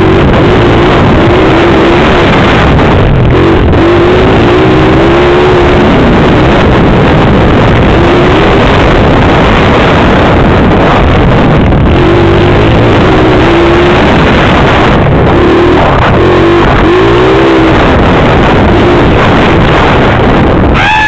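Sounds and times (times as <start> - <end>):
motorbike engine revving: 0.0 - 21.0
wind noise on microphone: 0.0 - 21.0.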